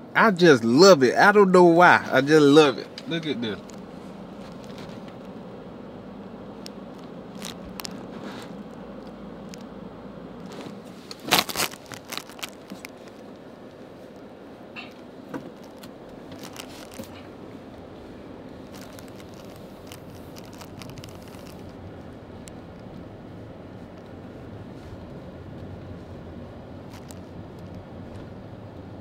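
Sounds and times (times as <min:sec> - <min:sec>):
car road noise: 0:00.0 - 0:29.0
sharp clicks and rattles: 0:18.6 - 0:21.8.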